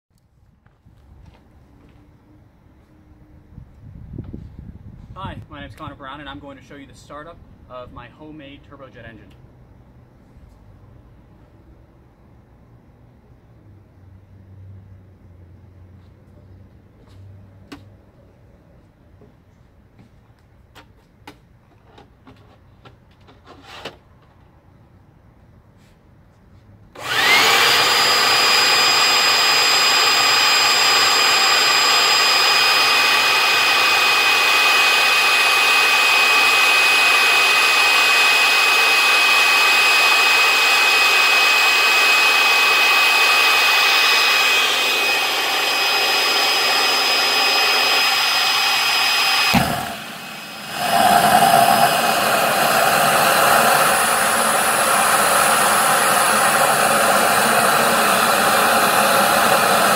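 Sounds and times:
jet engine rushing noise: 0:27.0 - 0:59.9
jet engine whine and whistling: 0:27.0 - 0:59.9.

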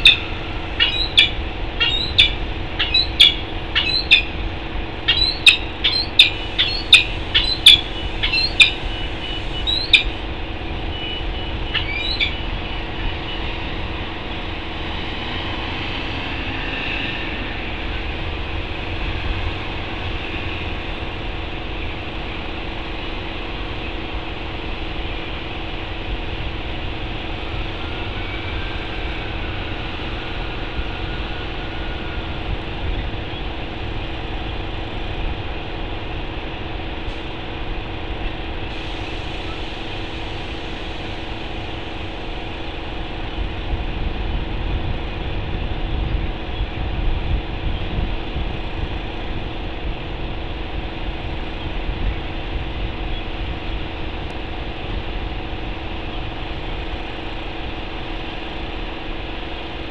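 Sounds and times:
falcon sharp calls: 0:00.0 - 0:04.3, 0:05.1 - 0:08.8, 0:11.7 - 0:12.4
city traffic rumble: 0:00.0 - 0:59.9.

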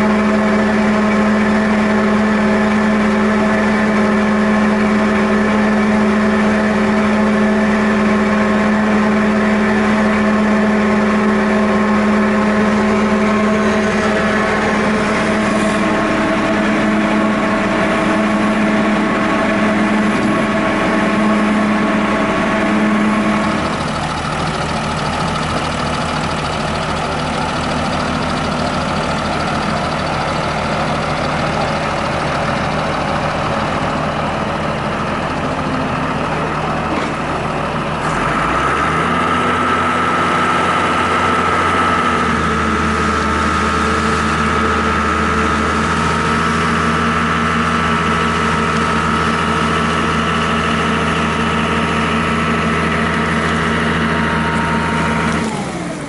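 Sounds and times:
tractor diesel engine running: 0:00.0 - 0:56.0
winch drums whining: 0:00.0 - 0:56.0.

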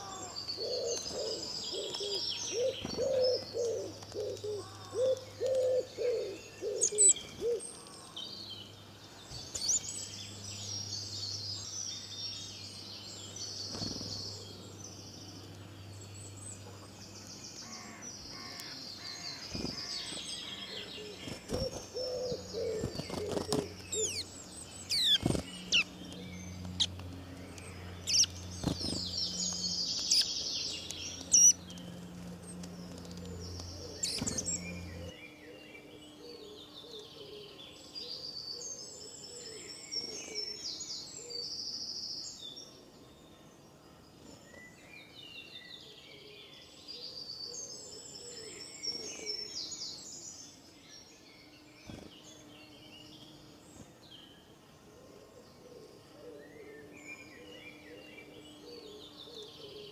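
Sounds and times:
low cooing calls: 0:00.0 - 0:07.8, 0:17.7 - 0:24.3
steady low hum: 0:00.0 - 0:41.4
birds chirping and singing: 0:00.0 - 0:59.9.

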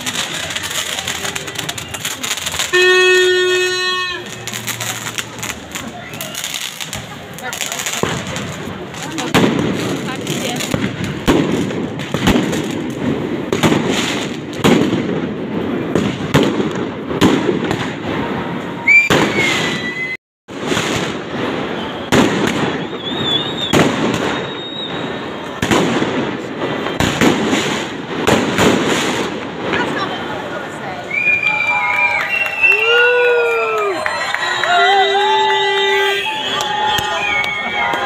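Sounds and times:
firework high whistling: 0:00.0 - 0:09.3, 0:18.0 - 0:25.6, 0:26.4 - 0:27.9, 0:30.9 - 0:38.0
fireworks bangs and crackles: 0:00.0 - 0:38.0.

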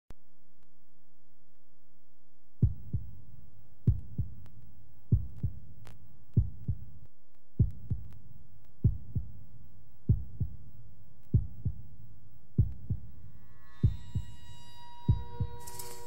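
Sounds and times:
low hum: 0:00.1 - 0:16.0
heartbeat thumps: 0:02.6 - 0:03.2, 0:03.8 - 0:04.5, 0:05.1 - 0:05.6, 0:06.3 - 0:06.9, 0:07.6 - 0:08.2, 0:08.8 - 0:09.4, 0:10.1 - 0:10.6, 0:11.3 - 0:11.9, 0:12.6 - 0:13.2, 0:13.8 - 0:14.3, 0:15.1 - 0:15.6.

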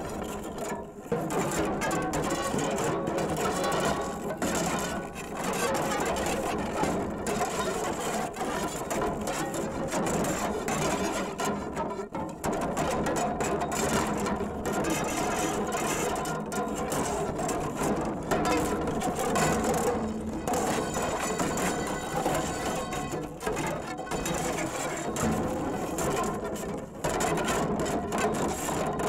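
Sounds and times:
amplified scraping and rattling: 0:13.5 - 0:28.7.

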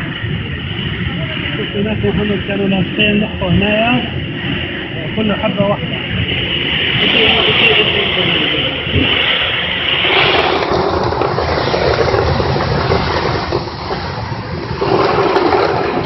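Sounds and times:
production line machinery running: 0:00.0 - 0:16.0.

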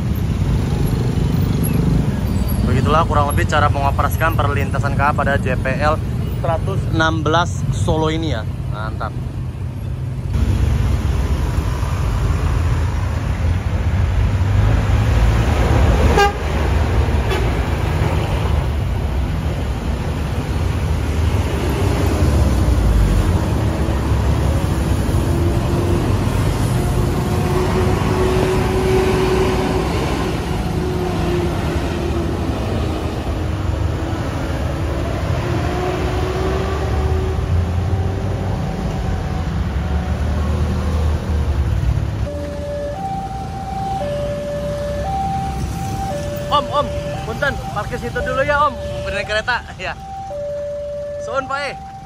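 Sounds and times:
bus and truck engines rumbling: 0:00.0 - 0:52.0
car horns tooting: 0:16.1 - 0:16.5, 0:17.2 - 0:17.6.

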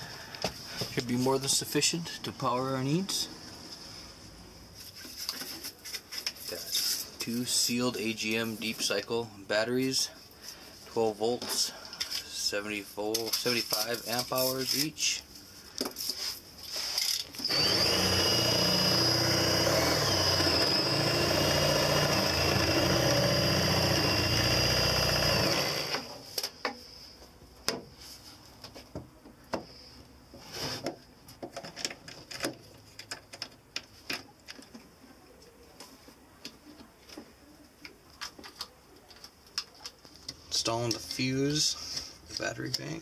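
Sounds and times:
cordless drill boring into wood: 0:17.4 - 0:26.1.

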